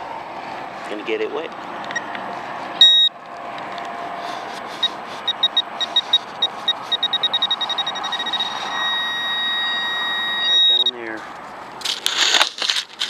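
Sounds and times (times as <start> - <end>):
pinpointer beeping: 2.8 - 3.1, 4.8 - 11.0.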